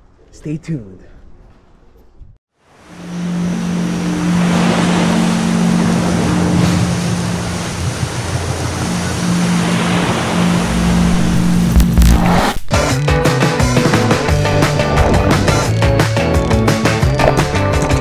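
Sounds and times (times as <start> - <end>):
ocean surf washing ashore: 2.7 - 12.6.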